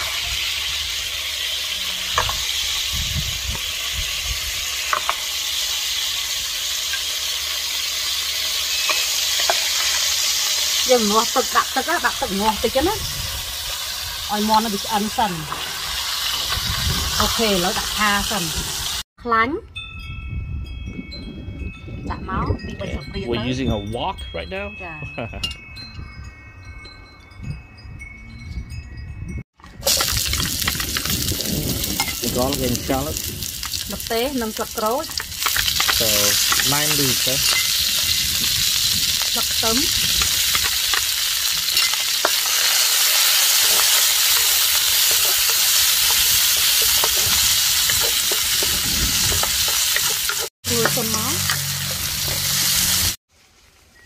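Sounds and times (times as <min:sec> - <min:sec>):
food sizzling in hot oil: 0:00.0 - 0:19.1, 0:29.7 - 0:53.9
wind chimes ringing: 0:08.3 - 0:13.2, 0:19.2 - 0:53.2
wooden spatula scraping wok: 0:41.7 - 0:53.2.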